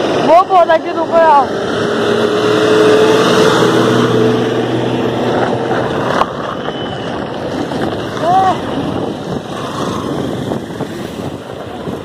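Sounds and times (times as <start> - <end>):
bus engine passing: 0.0 - 12.0
wind rushing over microphone: 0.0 - 12.0.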